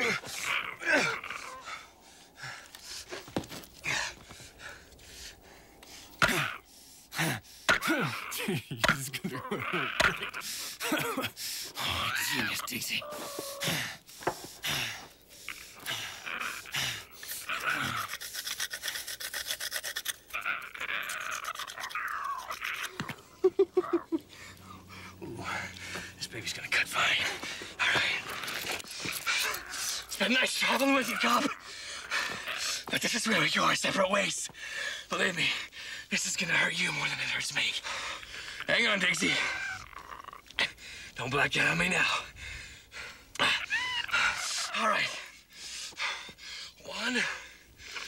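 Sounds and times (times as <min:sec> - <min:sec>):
man breathing hard and grunting: 0:00.0 - 0:12.5, 0:13.1 - 0:19.3, 0:24.0 - 0:32.9.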